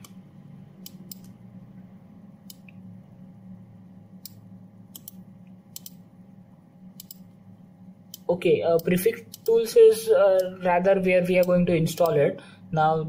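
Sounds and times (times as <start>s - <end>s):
steady low hum: 0.0s - 13.0s
mouse buttons clicking: 5.0s - 6.0s, 7.0s - 7.2s.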